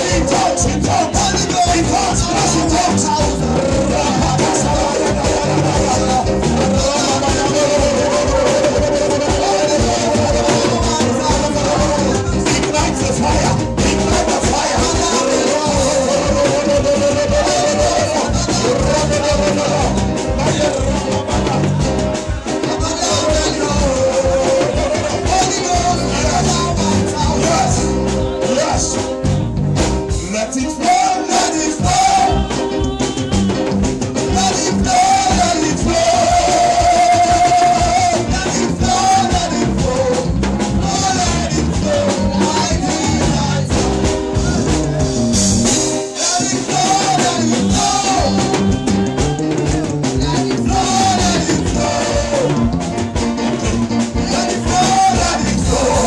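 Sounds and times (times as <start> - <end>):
drum kit: 0.0 - 56.0
electronic keyboard: 0.0 - 56.0
people singing: 0.0 - 56.0.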